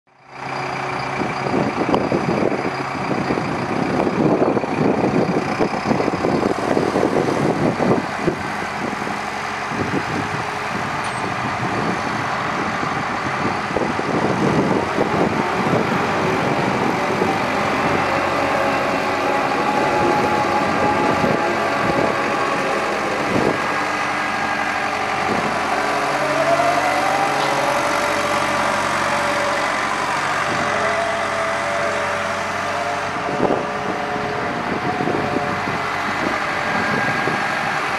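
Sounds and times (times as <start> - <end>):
excavator diesel engine running: 0.1 - 37.9
hydraulic whine: 5.2 - 37.9.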